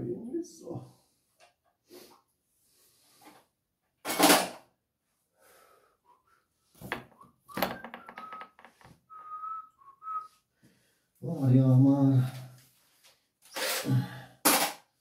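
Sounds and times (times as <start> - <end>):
objects clattering: 6.8 - 9.0.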